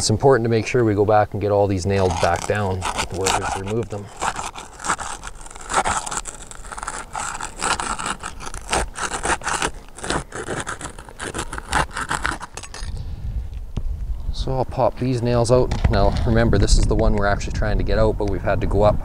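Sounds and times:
pry bar scraping under shingles: 1.4 - 13.0.

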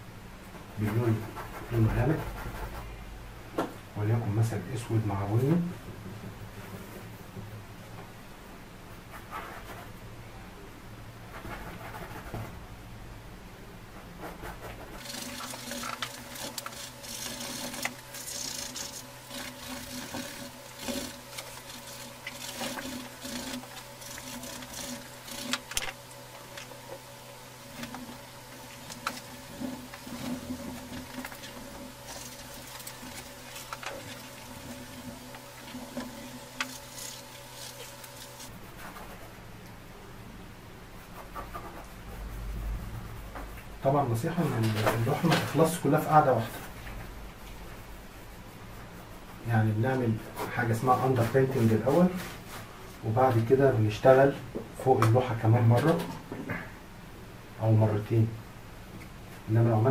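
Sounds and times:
steady low hum: 0.0 - 59.9
paintbrush scratching on canvas: 11.4 - 12.6, 14.2 - 25.7, 27.7 - 39.3.

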